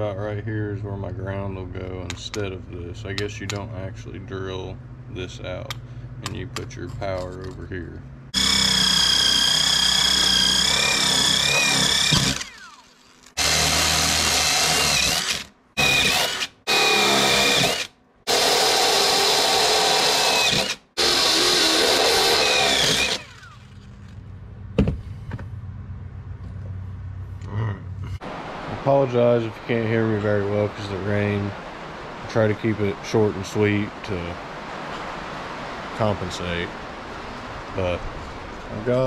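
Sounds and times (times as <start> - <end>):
impact driver drilling metal: 8.4 - 23.8.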